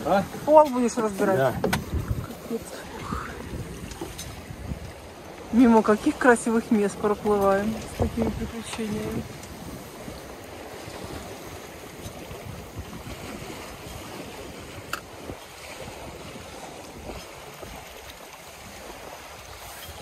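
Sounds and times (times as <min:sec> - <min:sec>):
water washing along hull: 0:00.0 - 0:20.0
wind buffeting microphone: 0:00.0 - 0:20.0.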